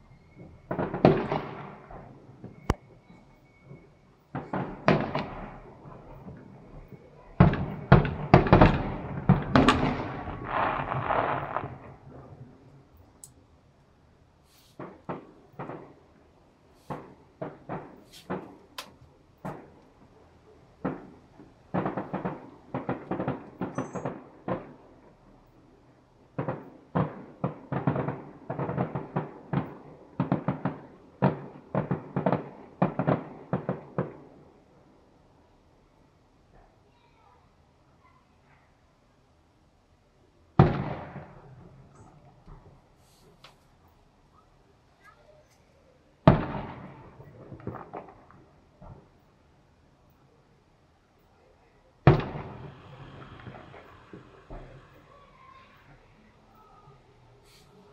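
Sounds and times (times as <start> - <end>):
fireworks exploding: 0.0 - 12.7, 14.4 - 25.6, 26.3 - 34.5, 40.6 - 44.0, 46.2 - 49.4, 52.0 - 57.9.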